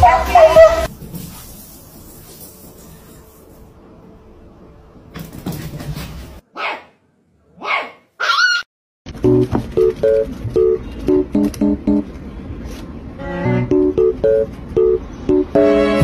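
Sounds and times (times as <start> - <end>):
small dog yipping: 6.6 - 6.9, 7.6 - 8.7
guitar music: 9.2 - 12.1, 13.2 - 16.0.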